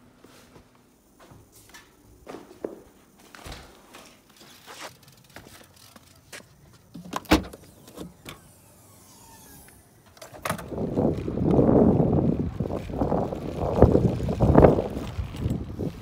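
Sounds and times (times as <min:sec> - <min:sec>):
wind noise on microphone: 0:10.3 - 0:16.0.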